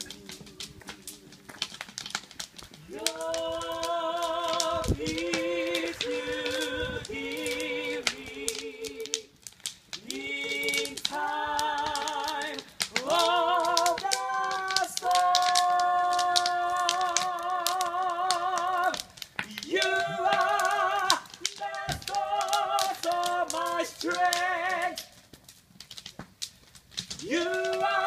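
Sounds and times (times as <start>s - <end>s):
person singing with vibrato: 2.9s - 9.3s, 10.0s - 25.0s, 27.2s - 28.0s.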